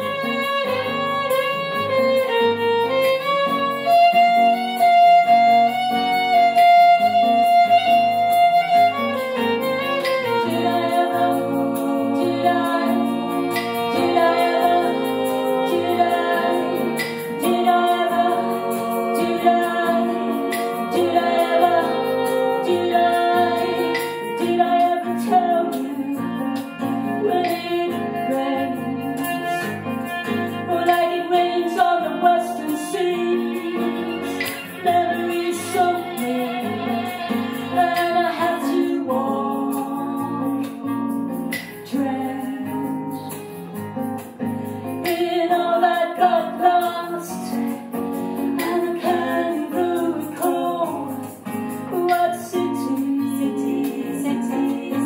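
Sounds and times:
fiddle: 0.0s - 40.8s
acoustic guitar: 0.0s - 55.0s
women singing: 2.5s - 43.4s, 44.9s - 55.0s
electric bass guitar: 4.2s - 31.5s.

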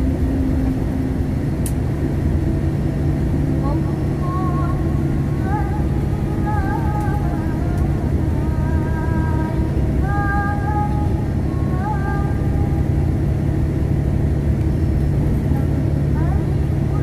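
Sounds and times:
bus engine drone: 0.0s - 17.0s
girl singing into microphone: 3.8s - 12.9s.

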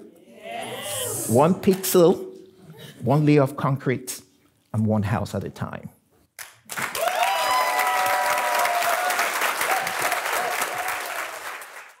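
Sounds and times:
audience clapping: 6.4s - 12.0s
voices cheering: 6.9s - 11.5s.

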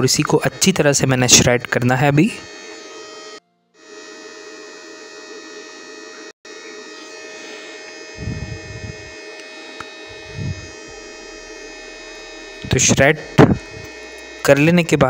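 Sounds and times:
electrical hum: 0.0s - 15.0s
high steady tones: 0.0s - 15.0s
low dull thumps: 10.2s - 14.5s.

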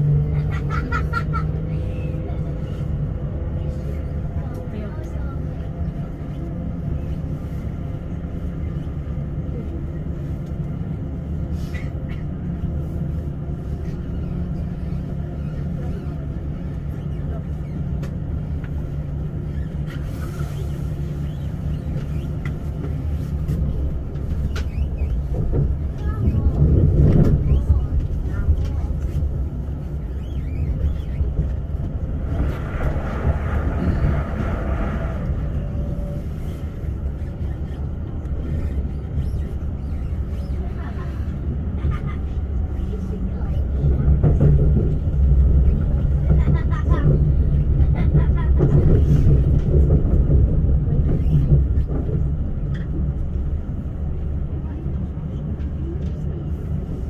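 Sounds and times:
electric train rumbling: 0.0s - 57.0s
passing train whoosh: 25.2s - 39.8s.

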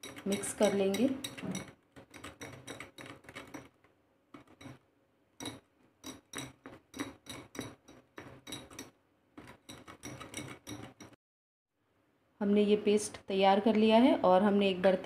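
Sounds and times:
spoon stirring batter in glass bowl: 0.0s - 11.2s.

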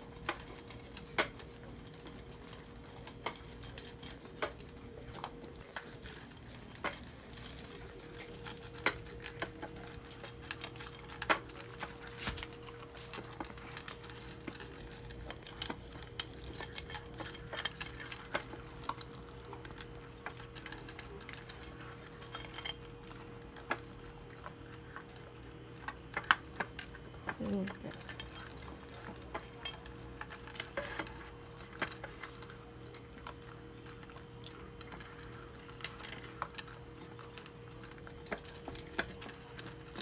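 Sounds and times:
faint hum: 0.0s - 40.0s
kibble clinking in metal bowls: 0.0s - 40.0s.

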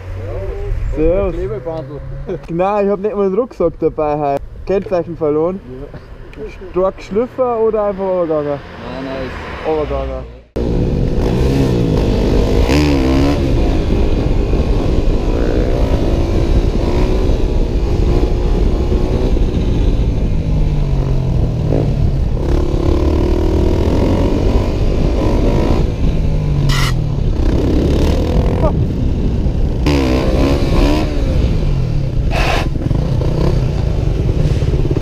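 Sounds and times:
dirt bike engine revving: 10.6s - 35.0s.

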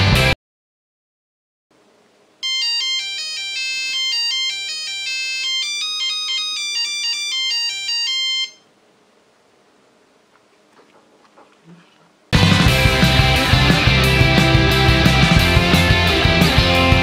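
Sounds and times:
electronic buzzer melody beeps: 2.4s - 8.7s.

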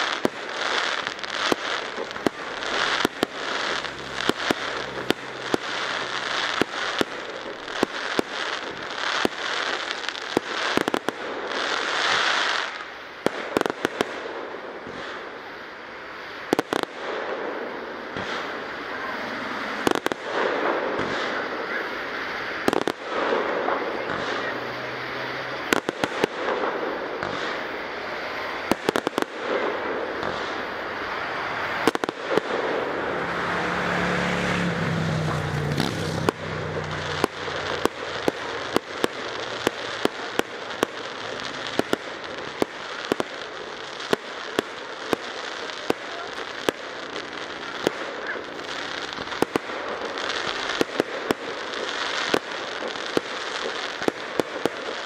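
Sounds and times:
fireworks shells bursting: 0.0s - 12.8s, 34.6s - 55.0s
fireworks crackling: 0.0s - 55.0s.

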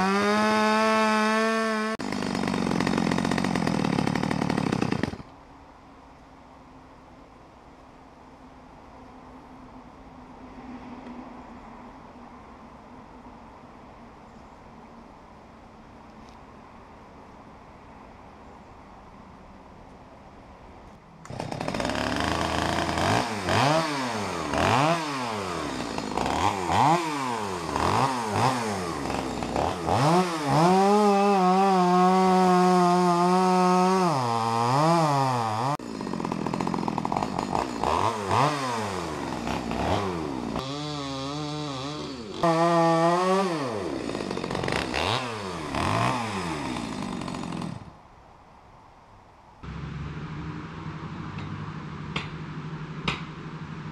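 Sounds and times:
chainsaw revving and cutting: 0.0s - 5.3s, 21.3s - 47.9s.

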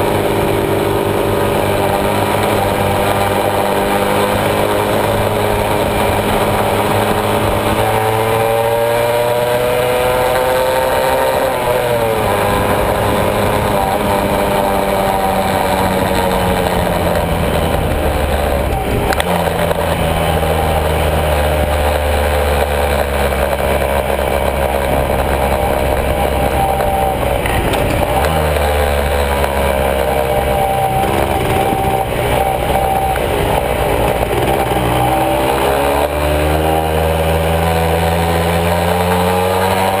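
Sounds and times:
motorcycle engine running: 0.0s - 40.0s.

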